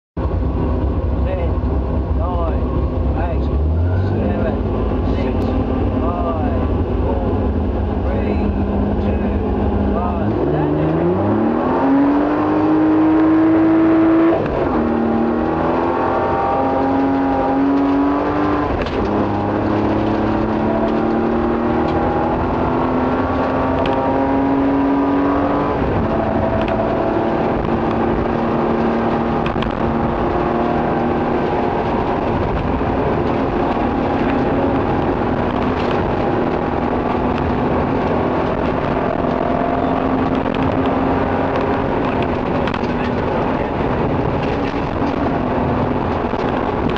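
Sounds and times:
rally car engine revving: 0:00.2 - 0:46.9
road noise on gravel: 0:16.5 - 0:46.9.

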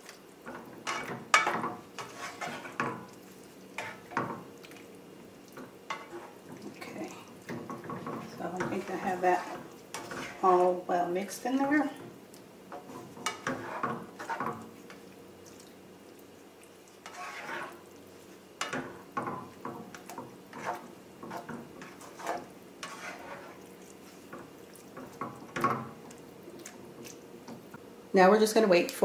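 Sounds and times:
spatula scraping sauce in skillet: 0:00.4 - 0:15.8, 0:16.8 - 0:27.7.

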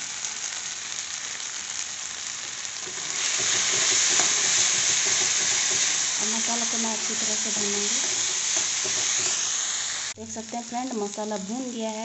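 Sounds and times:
masala sizzling in oil: 0:00.0 - 0:12.0
metal spatula stirring in pan: 0:02.8 - 0:09.6.

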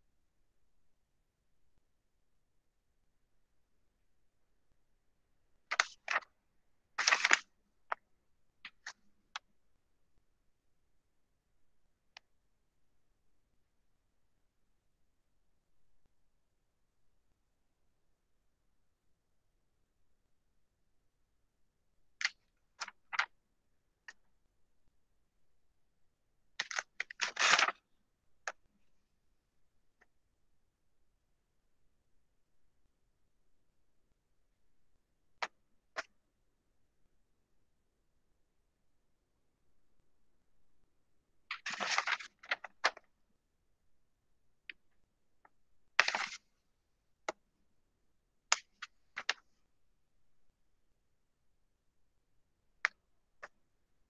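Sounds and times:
rustling at a desk: 0:07.0 - 0:08.0.

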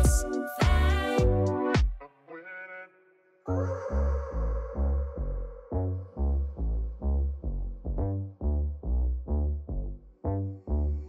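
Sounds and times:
deep bass beat: 0:00.0 - 0:02.0, 0:05.2 - 0:11.0
electronic synthesizer music: 0:00.0 - 0:02.0.

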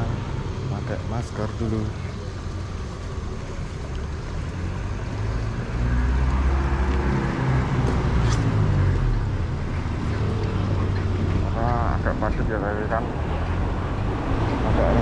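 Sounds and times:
vehicle engine passing by: 0:03.9 - 0:15.0
wind and riding noise: 0:13.0 - 0:15.0.

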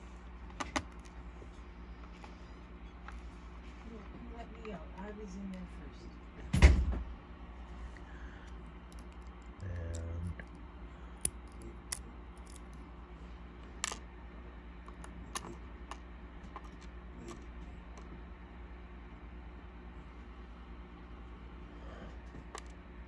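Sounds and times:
steady low hum: 0:00.0 - 0:23.0
tweezers and pins clicking on plastic: 0:11.2 - 0:12.8.

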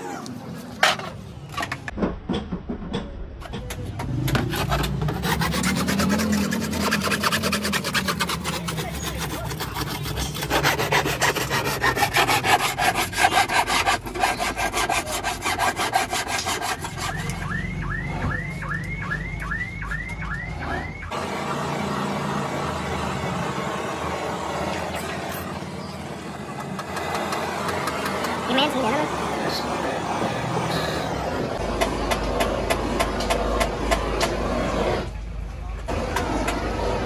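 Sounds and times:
file rasping on plastic: 0:04.5 - 0:17.5.

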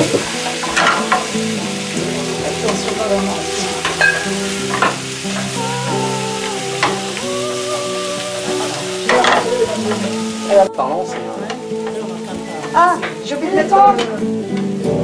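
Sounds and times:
water splashing into pan: 0:00.0 - 0:10.8
vegetables sizzling in a frying pan: 0:00.0 - 0:15.0.

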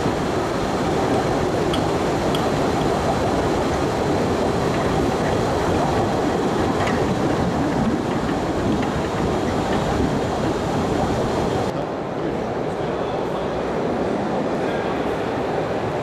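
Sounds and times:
train wheels rumbling: 0:00.0 - 0:11.7
faint clicks from rails: 0:01.1 - 0:11.2.

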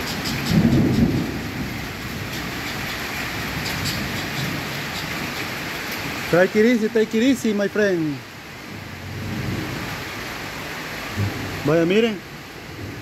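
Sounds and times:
distant thunder rumble: 0:00.0 - 0:06.3, 0:08.7 - 0:10.4, 0:11.0 - 0:11.7
rain falling: 0:00.0 - 0:13.0.

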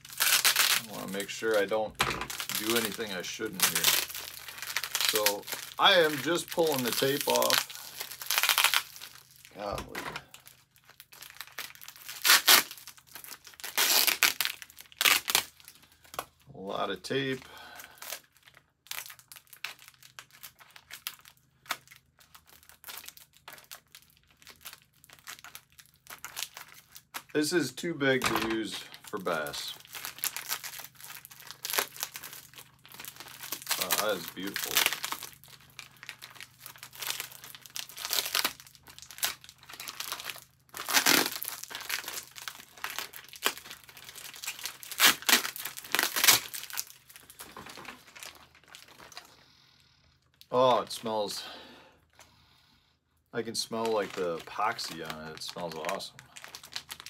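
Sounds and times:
packing tape ripping: 0:00.0 - 0:16.2, 0:28.0 - 0:49.3, 0:53.6 - 0:57.0
plastic bag crinkling: 0:00.0 - 0:16.2, 0:17.1 - 0:49.4, 0:53.4 - 0:57.0.

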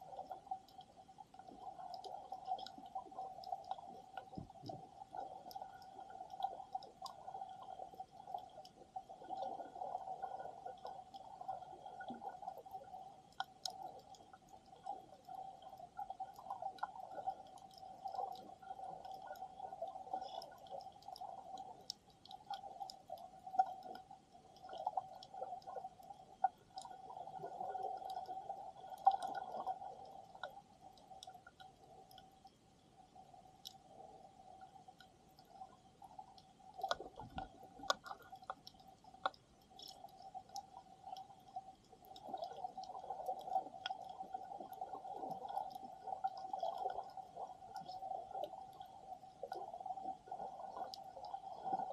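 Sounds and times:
underwater hum: 0:00.0 - 0:51.9
water moving: 0:00.0 - 0:51.9
sharp underwater clicks: 0:36.3 - 0:49.6.

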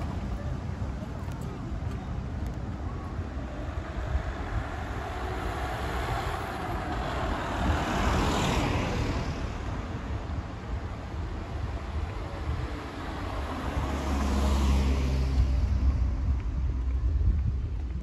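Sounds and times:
vehicle passing by: 0:03.2 - 0:17.1.

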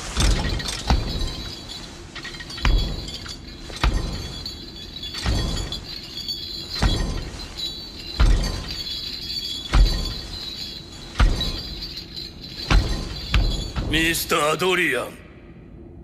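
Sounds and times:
heavy footsteps thudding: 0:00.0 - 0:14.1
iron chains clanking: 0:00.0 - 0:15.1.

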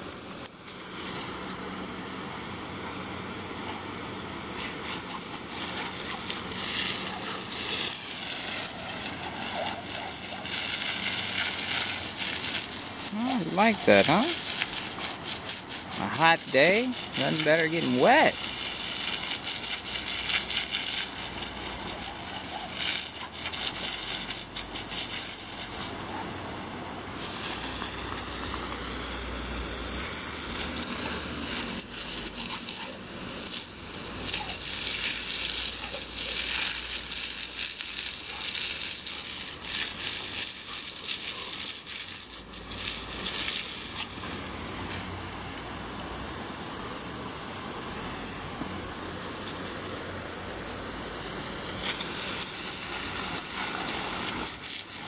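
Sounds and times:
water spattering on grass: 0:00.0 - 0:01.7, 0:04.5 - 0:26.2, 0:27.2 - 0:45.1, 0:49.1 - 0:55.0
hose spray nozzle hissing: 0:04.6 - 0:26.0, 0:27.2 - 0:44.5, 0:51.6 - 0:55.0.

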